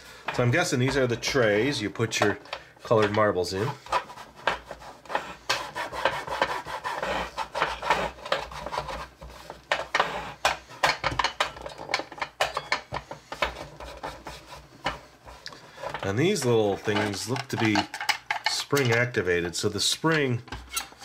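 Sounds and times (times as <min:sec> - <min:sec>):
paper towel scrubbing plastic: 0:03.4 - 0:10.4, 0:13.4 - 0:17.8.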